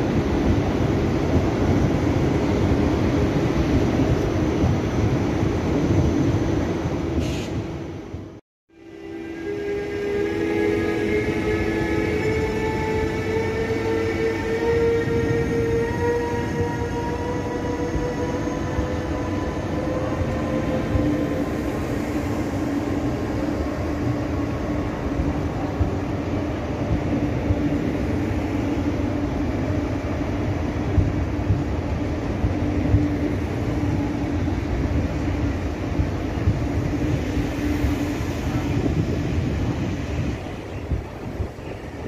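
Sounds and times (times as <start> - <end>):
electric locomotive whine: 0.0 - 42.0
wheels rumbling on rails: 9.0 - 42.0.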